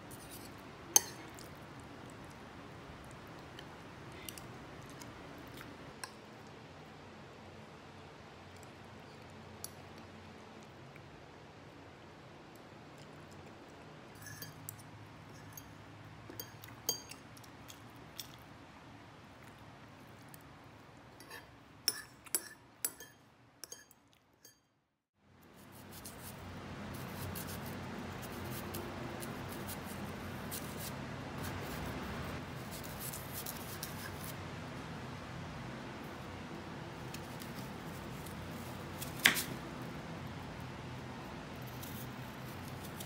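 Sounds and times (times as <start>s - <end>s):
cutlery scraping ceramic bowl: 0.1s - 1.4s, 14.2s - 15.7s, 21.2s - 24.6s
knife peeling apple: 25.6s - 26.4s, 27.0s - 34.4s, 37.0s - 39.7s, 41.5s - 43.0s.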